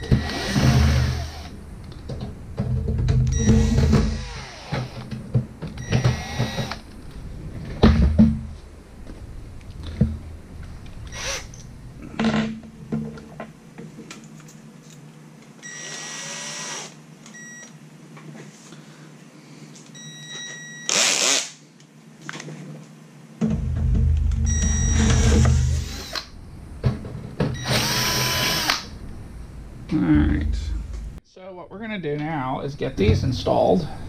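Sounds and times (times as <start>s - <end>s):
cordless drill whirring: 0.0s - 1.6s, 3.4s - 5.1s, 5.8s - 6.8s, 15.6s - 17.0s, 27.6s - 28.9s
metal knocks and clatter: 2.0s - 6.7s, 23.4s - 25.8s.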